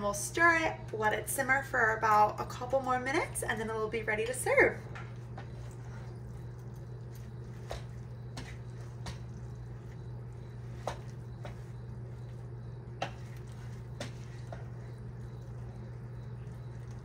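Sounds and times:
steady low hum: 0.0s - 17.0s
wooden spoon stirring soup: 4.6s - 17.0s.

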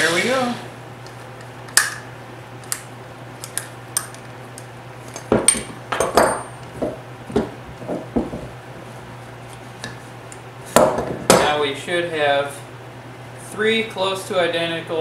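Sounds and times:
clamps knocking on workbench: 5.3s - 8.5s.

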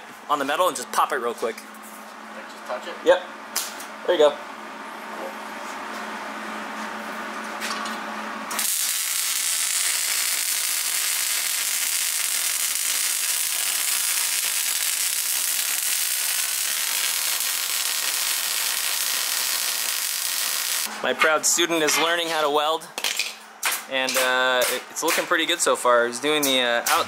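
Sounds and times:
welding arc hissing: 8.5s - 20.9s.

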